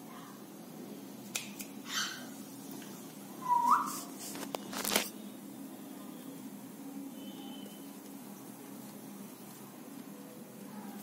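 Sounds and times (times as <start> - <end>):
rising whistle: 3.4 - 4.0.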